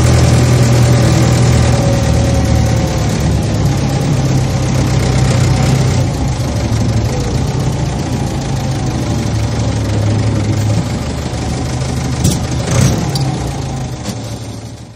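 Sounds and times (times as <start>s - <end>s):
heavy engine droning: 0.0s - 14.9s.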